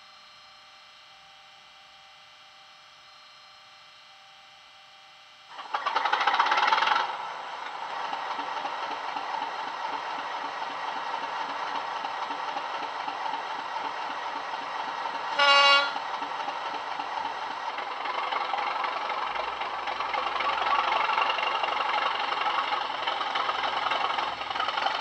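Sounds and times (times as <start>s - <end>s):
faint hum: 0.0s - 25.0s
diesel engine starting and idling: 5.5s - 25.0s.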